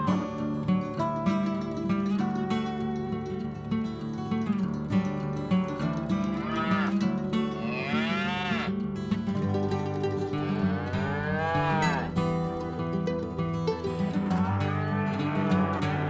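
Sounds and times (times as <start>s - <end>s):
cattle mooing: 6.1s - 8.8s, 10.2s - 12.6s, 14.2s - 16.0s.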